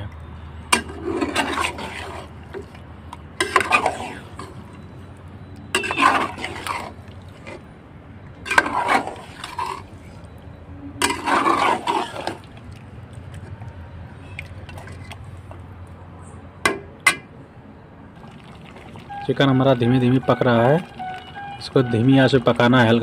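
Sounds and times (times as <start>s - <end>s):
spatula scraping in wet sauce: 0.8s - 5.1s, 5.7s - 7.7s, 8.4s - 10.4s, 11.0s - 15.6s.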